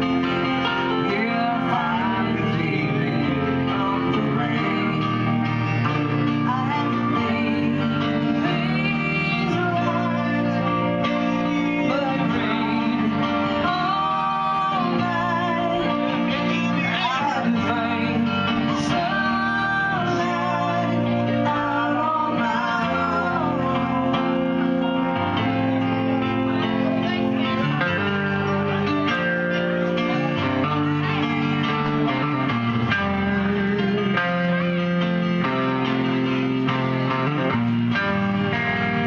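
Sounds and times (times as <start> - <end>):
electric guitar: 0.0 - 39.0
electric keyboard: 0.0 - 39.0
woman singing: 0.6 - 24.9.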